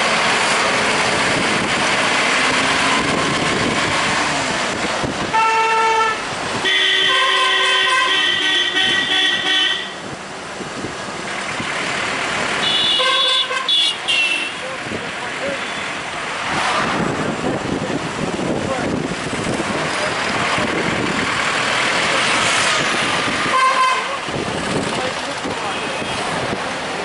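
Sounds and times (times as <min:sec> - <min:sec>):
street traffic: 0:00.0 - 0:27.0
vehicle horn honking: 0:05.3 - 0:10.0, 0:12.6 - 0:14.7, 0:23.4 - 0:24.2, 0:25.7 - 0:26.2.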